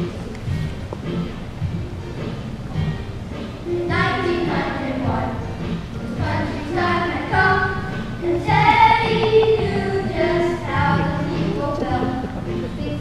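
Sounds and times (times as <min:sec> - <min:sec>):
children singing together: 0:03.7 - 0:13.0.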